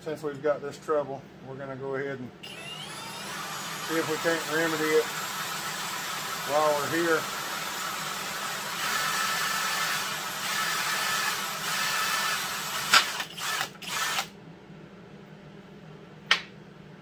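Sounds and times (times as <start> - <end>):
cordless drill boring into metal: 2.4 - 14.3.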